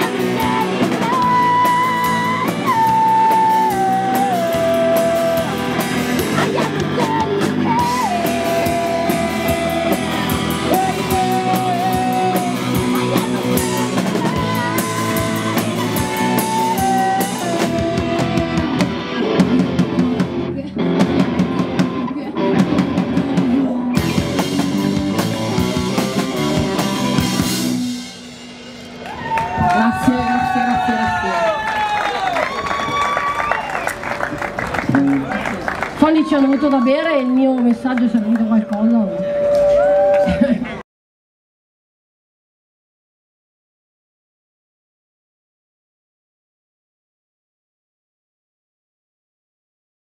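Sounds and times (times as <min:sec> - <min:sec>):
woman singing long notes: 0:00.0 - 0:06.0, 0:06.6 - 0:18.7
punk rock band playing live: 0:00.0 - 0:30.7.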